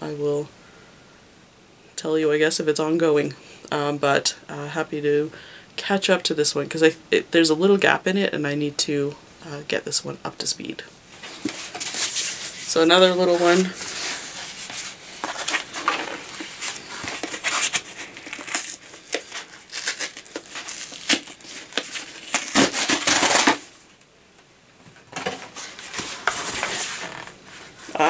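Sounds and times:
packaging crinkling and tearing: 13.5 - 23.9, 25.3 - 27.3.

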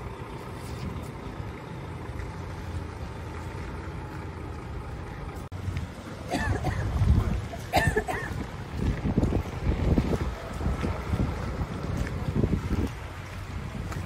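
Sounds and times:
wind buffeting microphone: 5.5 - 14.0.

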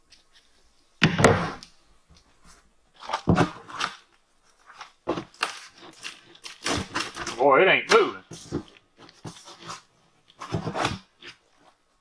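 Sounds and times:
dry dirt scraping and crunching: 3.0 - 7.5.

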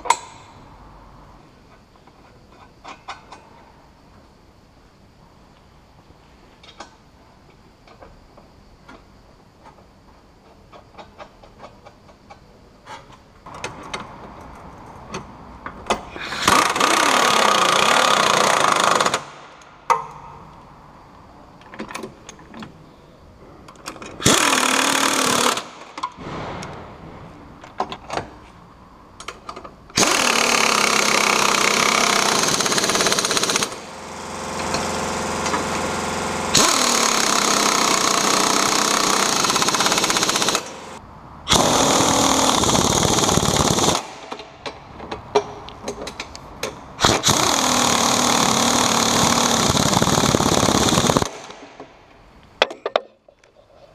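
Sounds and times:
impact wrench hammering bolts: 15.1 - 20.2, 23.8 - 26.3, 29.2 - 52.0.

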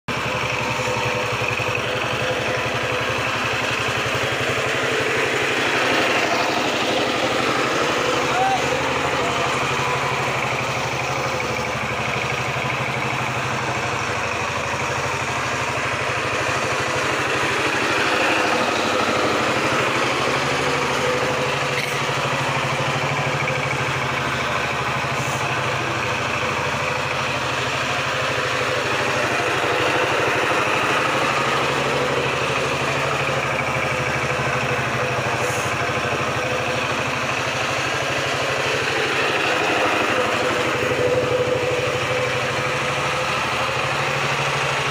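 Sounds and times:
diesel engine running: 0.0 - 44.9.

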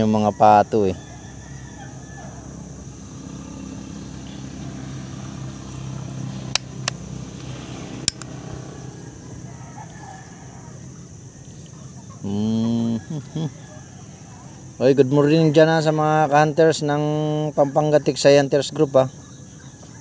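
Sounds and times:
distant engine hum: 0.0 - 20.0
sharp clicks: 6.5 - 8.3.

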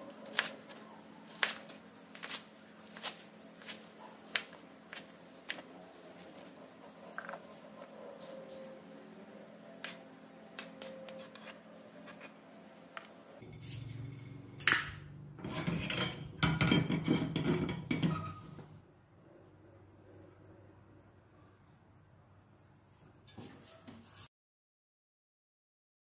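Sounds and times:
metal pans clattering on grate: 13.4 - 18.6.

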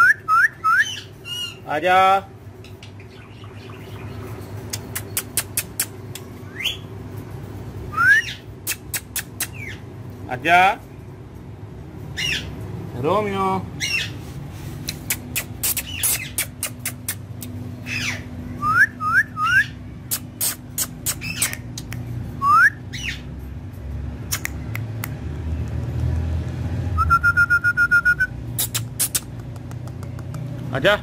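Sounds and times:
parakeet whistles: 0.0 - 1.6, 7.9 - 9.8, 17.9 - 21.6, 27.0 - 28.8
parakeet squawks: 0.6 - 1.7, 8.1 - 9.9, 12.1 - 12.6, 13.8 - 14.2, 15.0 - 17.2, 17.8 - 18.3, 19.4 - 21.8, 22.9 - 23.3.

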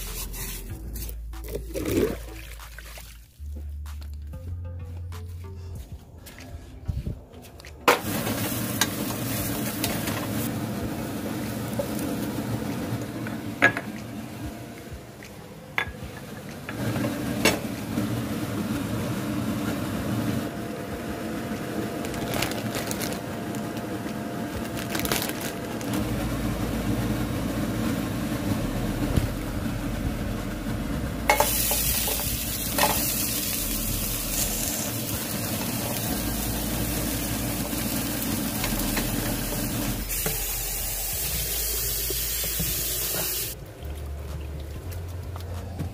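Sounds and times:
vegetables sizzling in a pot: 8.0 - 12.7, 31.3 - 43.6
plastic bag rustling: 22.0 - 24.0, 24.6 - 26.0.

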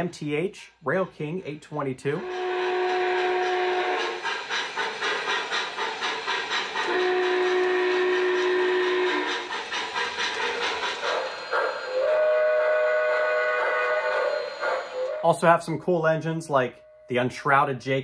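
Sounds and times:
model steam locomotive chuffing: 0.8 - 16.0
steam whistle blast: 2.1 - 4.3, 6.8 - 9.5, 11.2 - 15.5.

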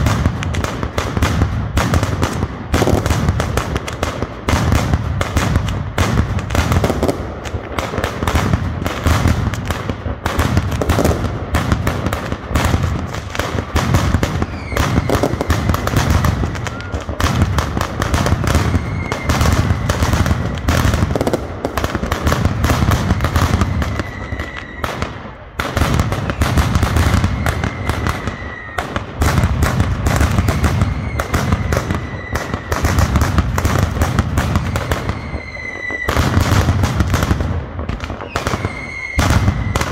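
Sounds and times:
firecrackers bursting: 0.0 - 39.9
faint high whistle: 16.7 - 17.0, 38.3 - 39.8.

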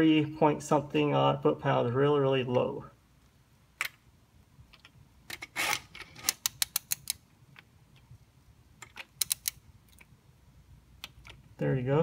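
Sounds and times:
short metal scrape: 5.4 - 6.4.

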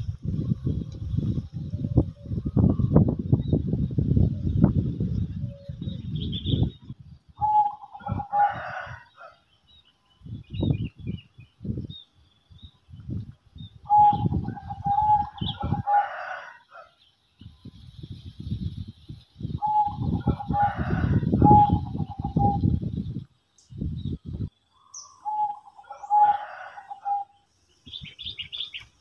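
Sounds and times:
rooster crowing: 8.0 - 9.4, 15.2 - 17.0, 20.2 - 21.8, 25.8 - 27.4
small birds chirping: 16.7 - 29.0.

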